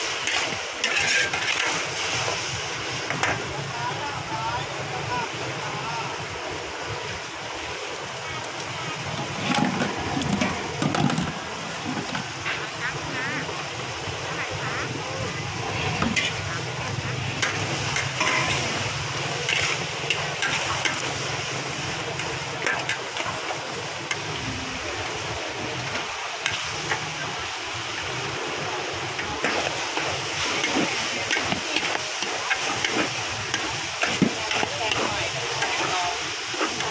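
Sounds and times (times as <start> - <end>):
metal spatulas scraping wok: 0.0 - 3.4, 15.8 - 16.6, 17.3 - 24.3
meat sizzling in wok: 0.0 - 36.9.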